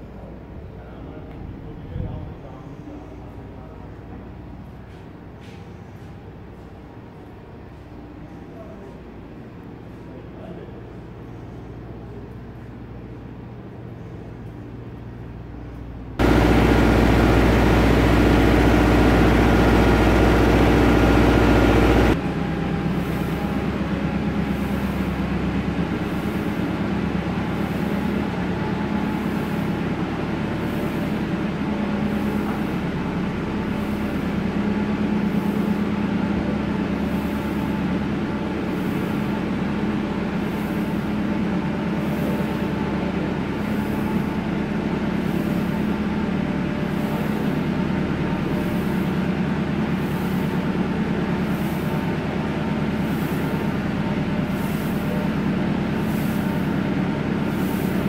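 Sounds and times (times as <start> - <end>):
feed mixer wagon droning: 16.2 - 58.0.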